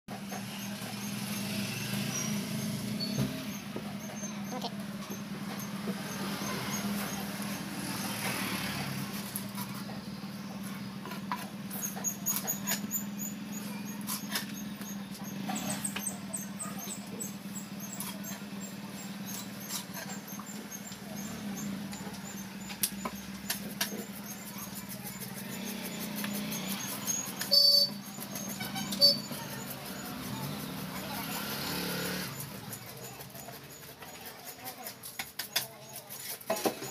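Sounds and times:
knife scraping fish scales: 22.8 - 36.9.

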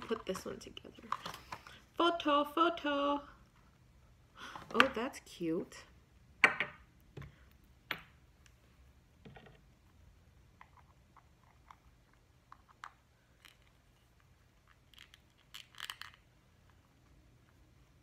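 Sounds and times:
plastic pieces clicking and tapping: 14.7 - 16.3.

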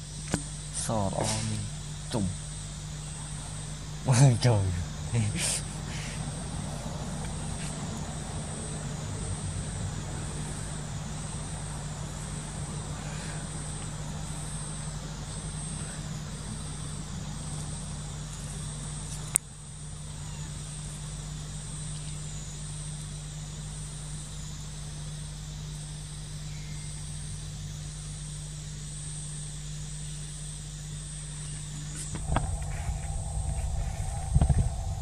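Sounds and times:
low steady hum: 0.0 - 24.6, 30.0 - 35.0
insects buzzing: 0.0 - 35.0.

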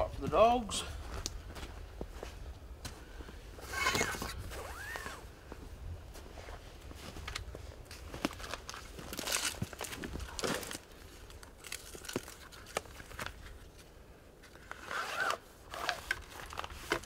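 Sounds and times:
zip rasp: 3.6 - 5.2, 14.8 - 16.0.

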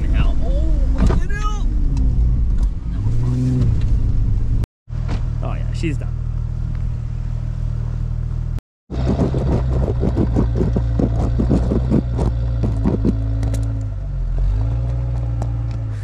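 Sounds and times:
engine droning: 0.2 - 16.0.

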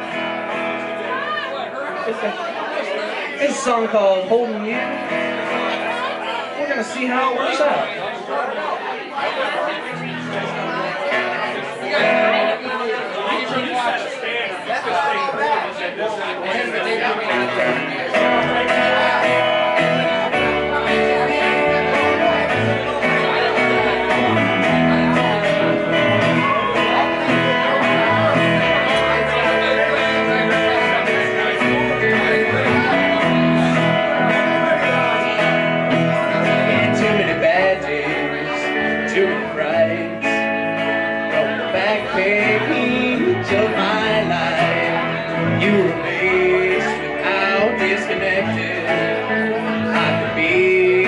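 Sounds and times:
electric guitar: 0.0 - 7.6, 9.8 - 12.8, 16.8 - 51.0
acoustic guitar: 0.0 - 51.0
plucked double bass: 17.4 - 51.0.

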